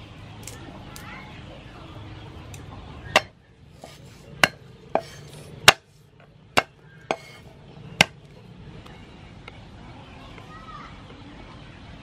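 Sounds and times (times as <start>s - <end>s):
cleaver chopping on wooden block: 3.2s - 5.9s, 6.6s - 7.4s, 8.0s - 8.2s.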